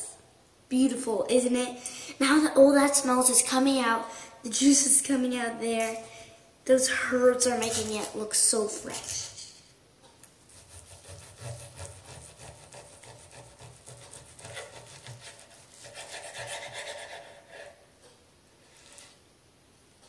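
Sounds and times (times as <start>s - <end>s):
blade rasping on wooden board: 10.5s - 17.7s
knife sawing through steak: 10.5s - 17.8s.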